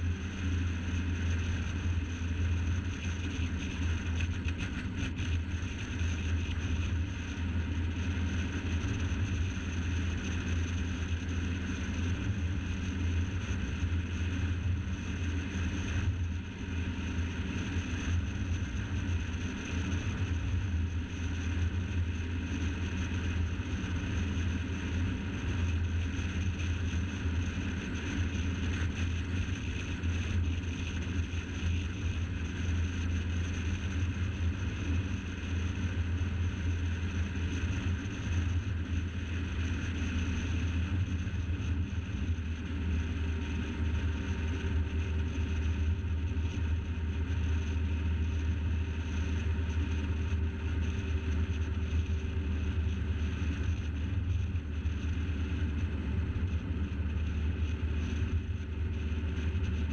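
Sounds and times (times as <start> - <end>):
car driving at speed: 0.0 - 59.9.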